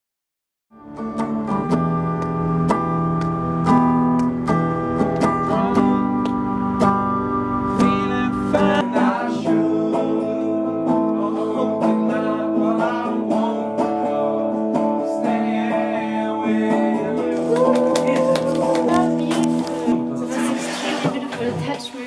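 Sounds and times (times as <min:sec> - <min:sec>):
electric and bass guitar rock tune: 0:00.7 - 0:20.3
man singing: 0:05.4 - 0:06.3, 0:07.7 - 0:20.6.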